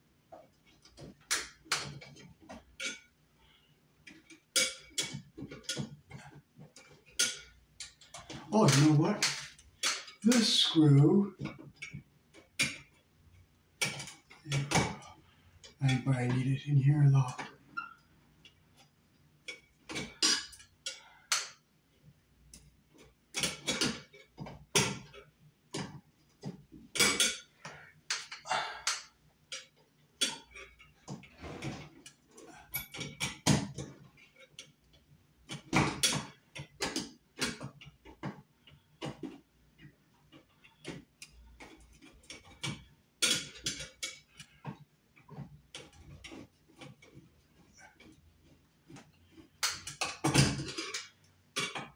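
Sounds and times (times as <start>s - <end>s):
metal and plastic clicks and rattles: 0.3s - 16.5s, 17.2s - 51.9s.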